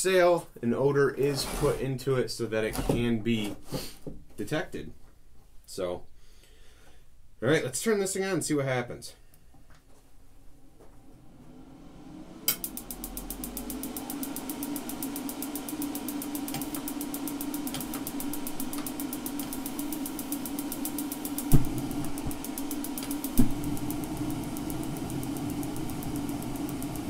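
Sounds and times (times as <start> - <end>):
heater fan humming: 0.0 - 27.0
igniter clicking rapidly: 12.5 - 27.0
loud thumps: 21.4 - 22.4.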